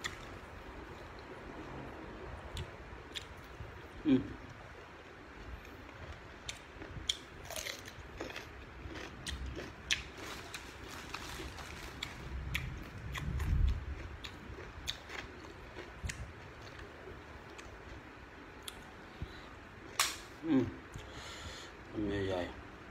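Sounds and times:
person chewing raw cucumber: 2.4 - 19.0
low rumble: 10.2 - 14.9.

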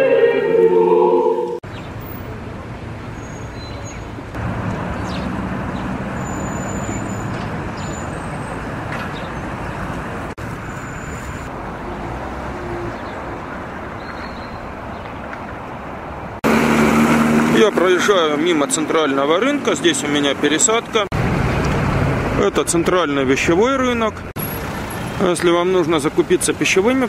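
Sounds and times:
road traffic rumble: 1.5 - 27.0.

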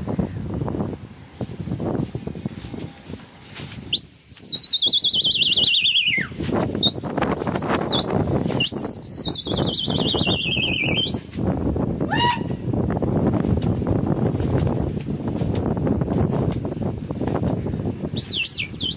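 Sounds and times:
shrill warbling whistle: 3.9 - 11.5, 18.2 - 18.9.

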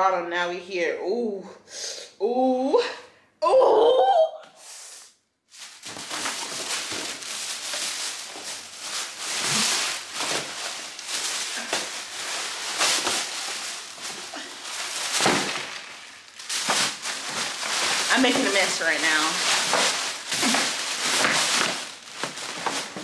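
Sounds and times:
paper rustling and crinkling: 5.5 - 23.0.

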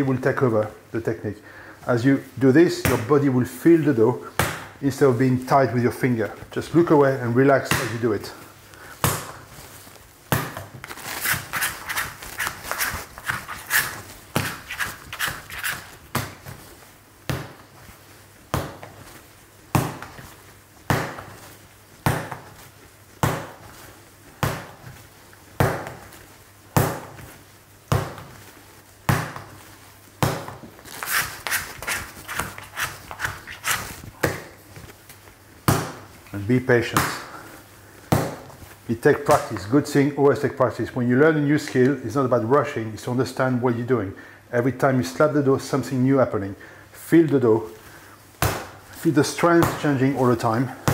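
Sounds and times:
sticky dough smacks: 4.3 - 4.8, 7.6 - 8.1, 9.0 - 9.5, 10.3 - 17.8, 18.5 - 19.1, 19.7 - 25.0, 25.6 - 29.6, 30.2 - 34.6, 35.6 - 36.2, 36.9 - 37.3, 38.1 - 38.6, 48.4 - 48.9.

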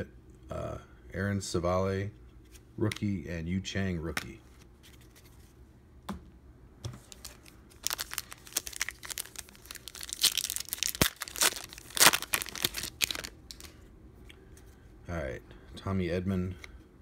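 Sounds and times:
foil wrapper tearing and crinkling: 7.1 - 13.8.

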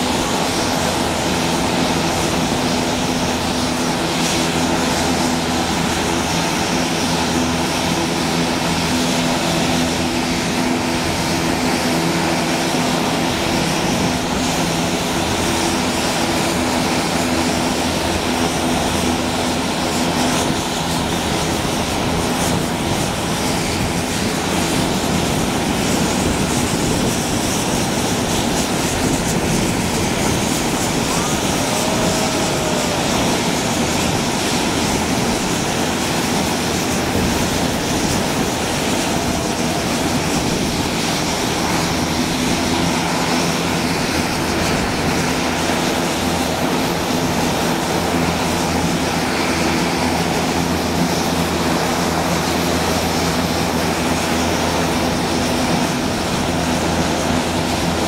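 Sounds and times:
turboprop engines droning: 0.0 - 58.0.

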